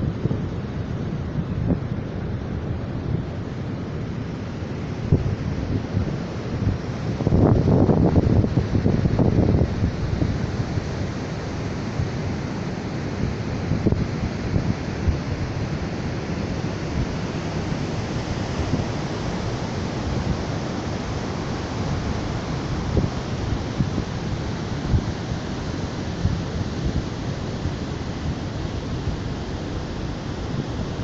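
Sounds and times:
ocean surf: 0:00.0 - 0:31.0
wind buffeting the microphone: 0:00.0 - 0:31.0.

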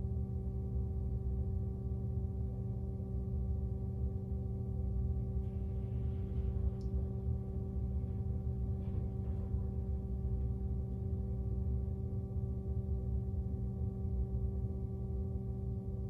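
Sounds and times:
low electrical hum: 0:00.0 - 0:16.0
faint rustling: 0:05.4 - 0:11.5.

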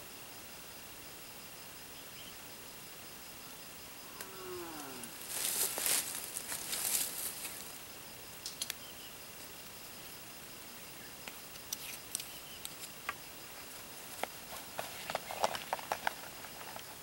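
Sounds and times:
rustling of dry leaves: 0:04.0 - 0:10.5, 0:11.1 - 0:17.0
footsteps on dry leaves: 0:05.2 - 0:07.7.

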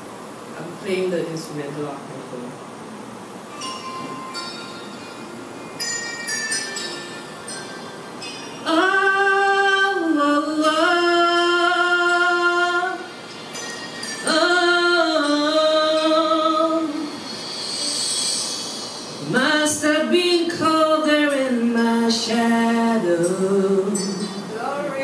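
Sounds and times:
instrumental backing track from phone: 0:03.5 - 0:25.0
woman singing wordless notes: 0:08.6 - 0:25.0.

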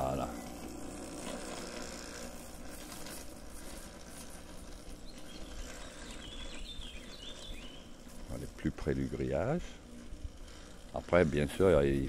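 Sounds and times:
electric mower low hum: 0:00.0 - 0:12.0
outdoor noise: 0:00.0 - 0:12.0.

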